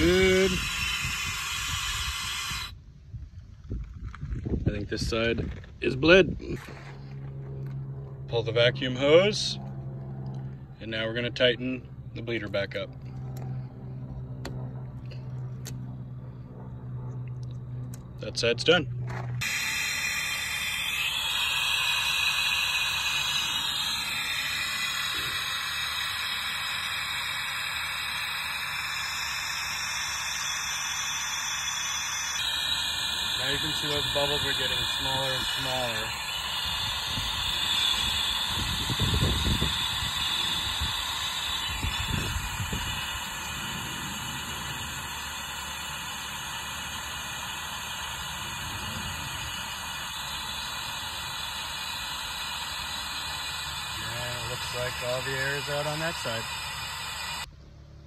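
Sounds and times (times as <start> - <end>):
air-driven vacuum hissing: 0.0 - 3.7, 18.3 - 57.5
low rumble: 0.0 - 27.4, 48.2 - 50.3.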